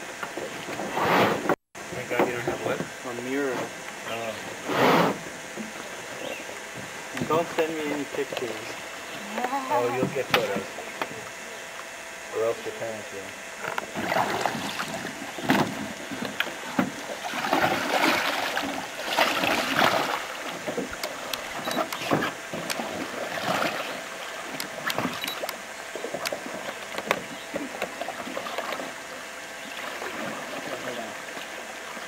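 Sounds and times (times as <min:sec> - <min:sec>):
paddles splashing in water: 0:13.8 - 0:32.0.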